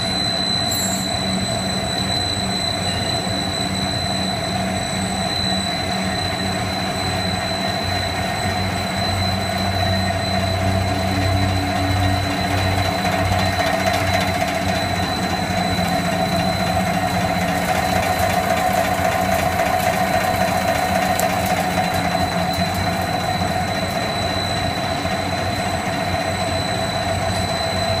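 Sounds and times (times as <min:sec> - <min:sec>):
high machine whine: 0:00.0 - 0:28.0
machinery humming: 0:00.0 - 0:28.0.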